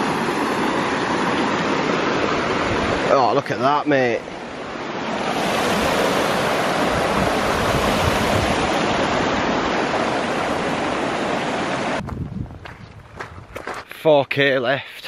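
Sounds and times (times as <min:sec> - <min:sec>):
stream rushing over boulders: 0:00.0 - 0:12.0.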